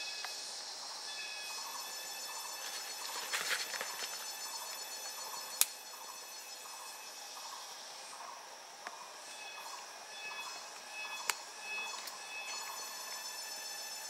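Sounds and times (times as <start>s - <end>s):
forest insects droning: 0.0s - 14.0s
dry sticks rustling: 2.5s - 4.8s.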